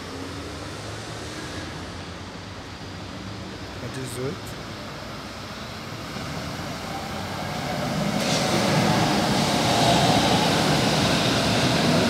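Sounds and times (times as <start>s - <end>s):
train wheels rumbling on rails: 5.2s - 12.0s.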